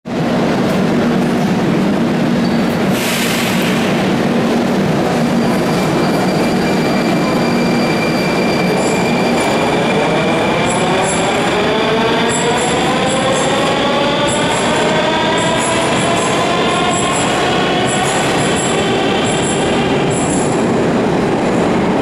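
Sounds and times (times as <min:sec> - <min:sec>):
metro train rumble: 0:00.1 - 0:22.0
rising whine of train accelerating: 0:00.1 - 0:22.0
high-pitched squeals: 0:05.1 - 0:20.7.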